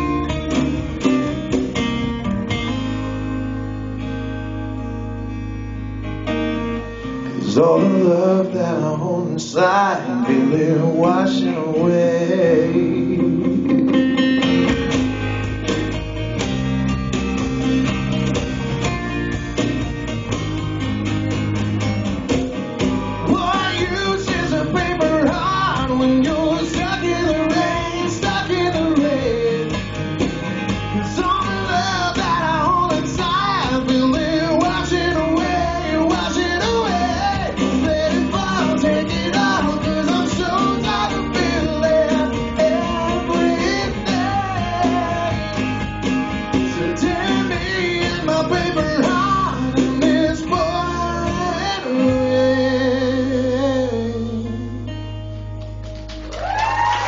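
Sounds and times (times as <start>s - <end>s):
strummed acoustic guitars: 0.0s - 56.3s
bass guitar: 0.0s - 57.0s
person singing melody: 7.2s - 14.2s, 46.8s - 55.0s.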